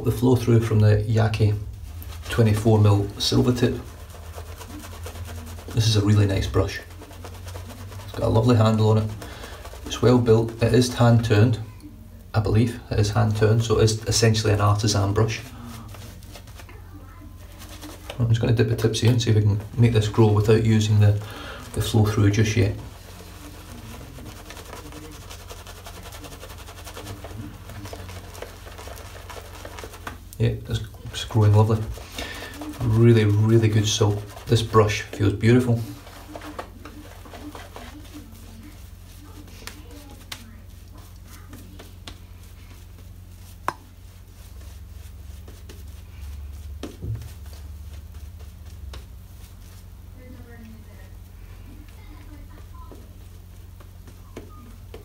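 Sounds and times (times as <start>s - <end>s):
shaving brush swirling lather: 0.0s - 55.0s
steady low hum: 0.0s - 55.0s.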